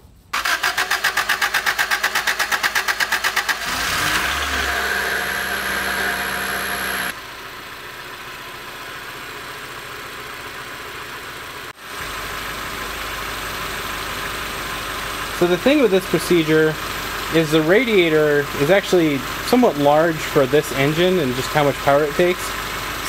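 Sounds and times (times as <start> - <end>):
starter motor cranking: 0.4 - 7.2
car engine idling: 0.4 - 23.0.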